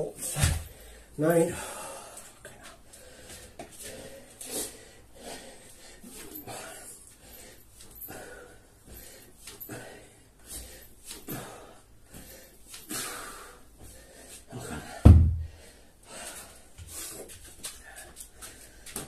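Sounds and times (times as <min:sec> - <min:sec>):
man breathing hard: 0:00.2 - 0:19.0
heavy thump: 0:15.0 - 0:15.5.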